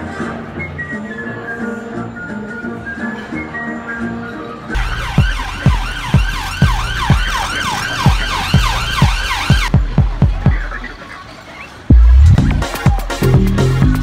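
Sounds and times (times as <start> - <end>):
kick drum: 9.0 - 10.6.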